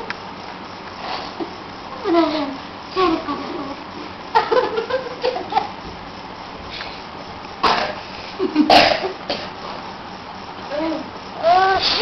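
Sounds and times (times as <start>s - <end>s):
small child babbling and giggling: 2.0s - 3.8s.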